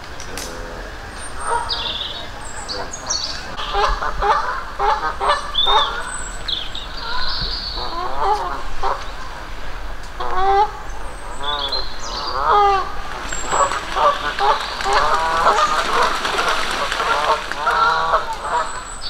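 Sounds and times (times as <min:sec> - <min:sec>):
geese honking: 0:00.3 - 0:19.0
small birds chirping: 0:05.4 - 0:08.2, 0:10.8 - 0:19.0.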